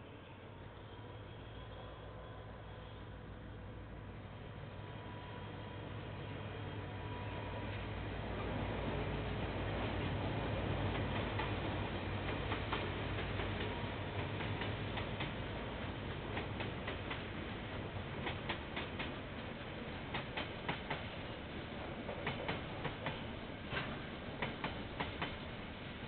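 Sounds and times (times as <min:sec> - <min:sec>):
locomotive low drone: 0:00.0 - 0:26.0
train rumble: 0:00.0 - 0:26.0
train wheels clicking over rail joints: 0:10.9 - 0:25.6.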